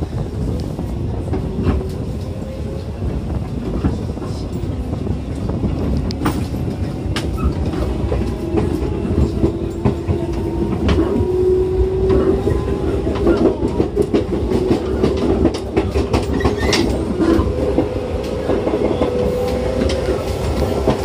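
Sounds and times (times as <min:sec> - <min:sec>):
train wheels rumbling on rails: 0:00.0 - 0:21.0.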